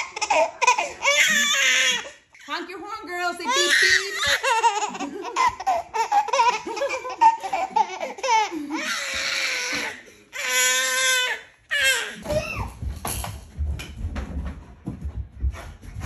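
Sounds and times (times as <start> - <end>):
baby laughing: 0.0 - 2.2, 3.5 - 12.7.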